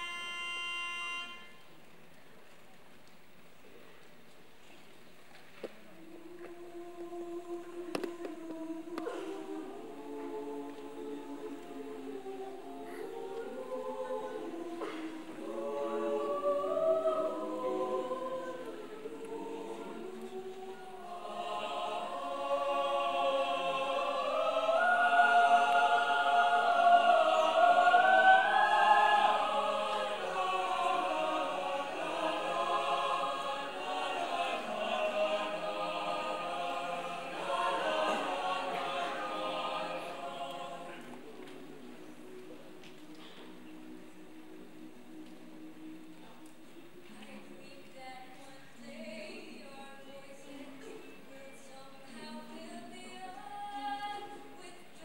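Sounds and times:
choir singing a cappella: 0.0s - 1.6s, 5.8s - 55.0s.

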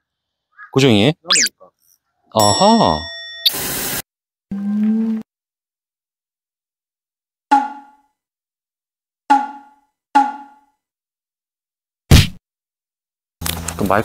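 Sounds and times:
wood block percussion hits: 7.5s - 8.0s, 9.3s - 10.7s.

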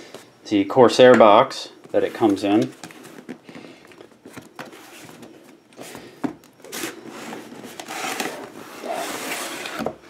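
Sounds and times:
cardboard scraping and rustling: 1.9s - 10.0s.

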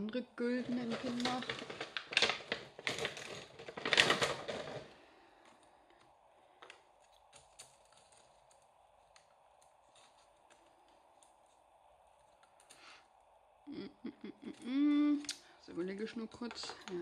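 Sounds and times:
plastic packaging rustling: 0.0s - 13.3s.

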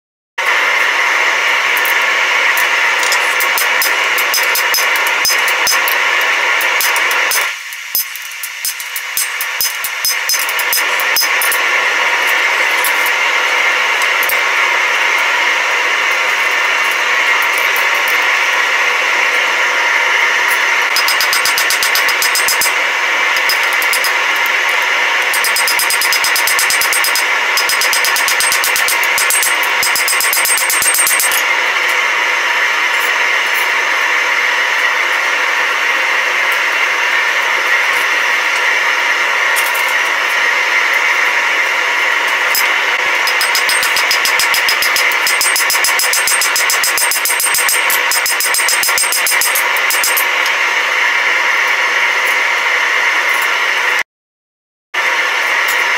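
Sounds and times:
loud workshop noise: 0.4s - 54.0s, 55.0s - 55.9s
hammer striking hot steel on anvil: 1.7s - 13.3s, 20.4s - 32.0s, 42.2s - 50.6s.

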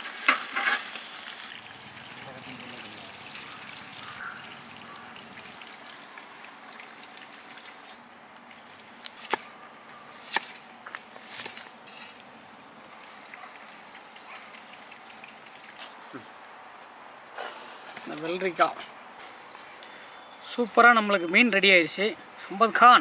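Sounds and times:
oil sizzling: 0.0s - 8.0s, 10.1s - 16.2s
cleaver chopping on wooden block: 10.3s - 10.6s.

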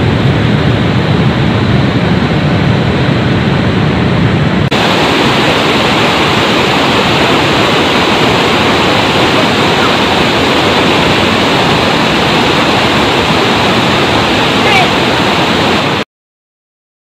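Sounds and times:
river rapids rushing: 4.7s - 16.0s.

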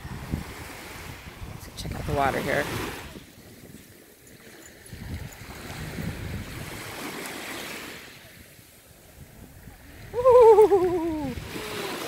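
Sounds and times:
small waves lapping on shore: 0.0s - 12.0s
woman exclaiming ooh: 10.1s - 11.9s.

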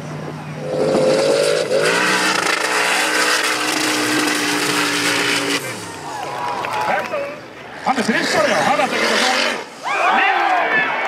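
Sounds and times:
buggy engine at high revs: 0.0s - 6.4s, 7.7s - 9.8s.

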